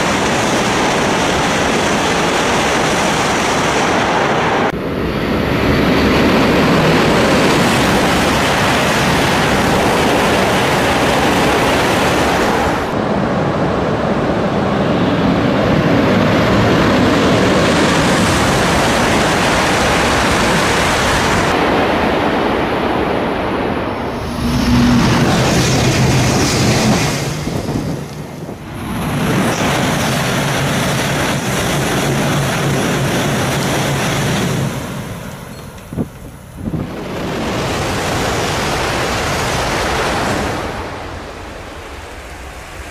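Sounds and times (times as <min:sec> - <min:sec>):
bullet train passing at high speed: 0:00.0 - 0:42.9
low hum: 0:21.8 - 0:29.7.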